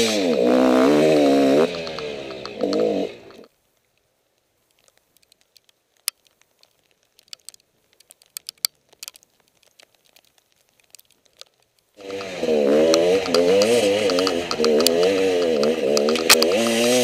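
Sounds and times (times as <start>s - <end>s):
dirt bike engine running: 0.0s - 3.5s, 12.0s - 17.0s
sharp clicks: 1.6s - 4.1s, 4.7s - 17.0s.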